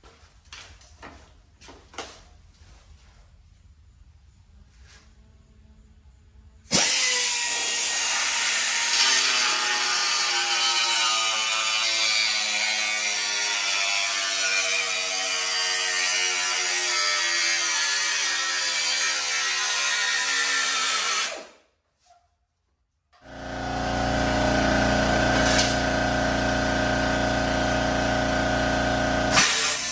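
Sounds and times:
pneumatic tool cutting metal: 6.7s - 21.6s, 23.2s - 29.9s.

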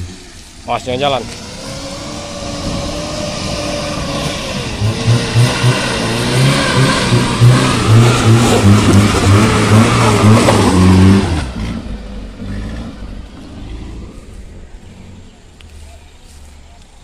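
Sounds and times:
pickup engine revving hard: 0.0s - 14.2s
tyres crunching on gravel: 12.5s - 17.0s.

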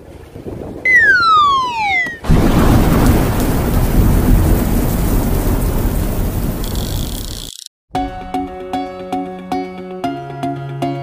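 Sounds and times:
whistle falling in pitch: 0.9s - 2.3s
thunder crash rumbling: 2.2s - 7.3s.

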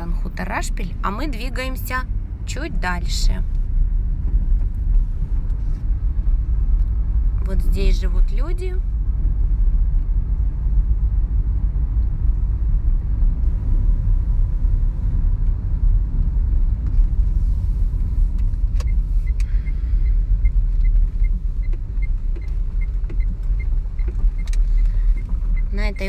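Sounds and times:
car driving on gravel road: 0.0s - 26.0s
light regular ticking: 18.4s - 26.0s.

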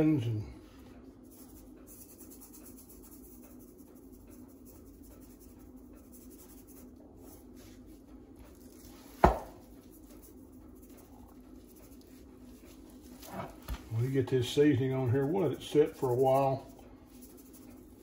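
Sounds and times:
seasoning pattering onto meat: 1.2s - 13.2s, 13.9s - 18.0s
roast thumping on cutting board: 9.2s - 9.6s.

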